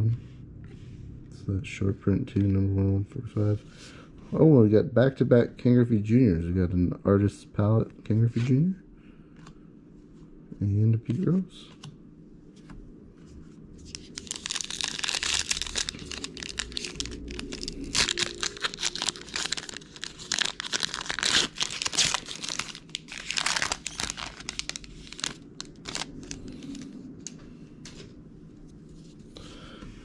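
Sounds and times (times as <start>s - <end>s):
plastic wrapper tearing and crumpling: 13.9s - 27.4s.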